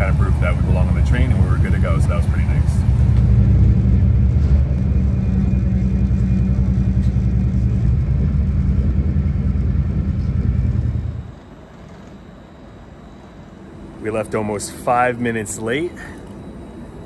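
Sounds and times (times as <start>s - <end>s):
train rumble inside carriage: 0.0s - 13.4s.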